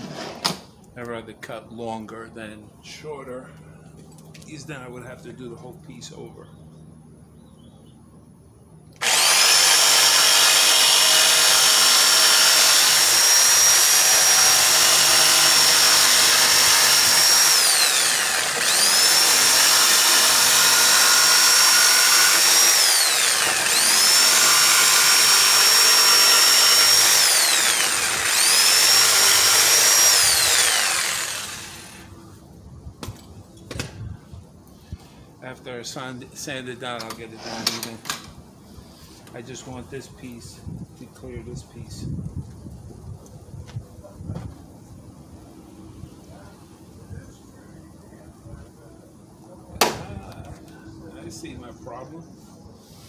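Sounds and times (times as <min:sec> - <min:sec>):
jigsaw cutting wood: 0:09.0 - 0:32.1.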